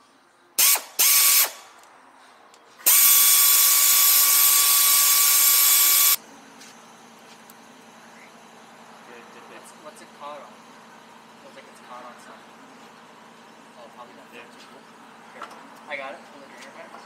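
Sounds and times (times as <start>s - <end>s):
air hissing: 0.6s - 1.6s, 2.8s - 6.2s
air ratchet whining: 0.6s - 1.6s, 2.8s - 6.2s.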